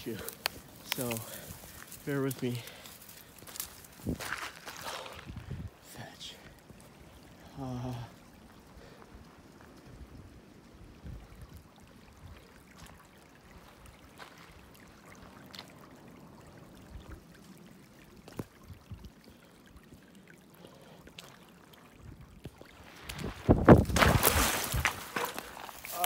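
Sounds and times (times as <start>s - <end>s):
feet splashing in creek: 0.0s - 5.4s, 12.1s - 16.8s, 17.4s - 26.0s
stones clicking underfoot: 0.0s - 5.4s, 22.4s - 26.0s
running water: 0.0s - 26.0s.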